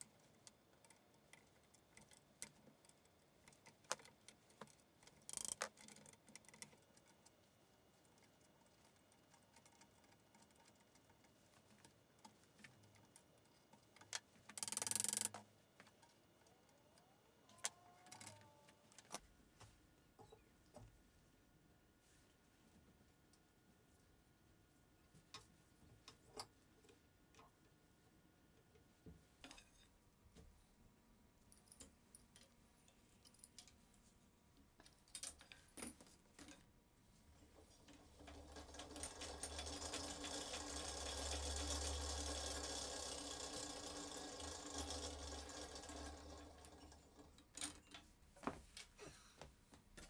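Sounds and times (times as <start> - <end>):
treadle scroll saw clattering: 37.9 - 47.9.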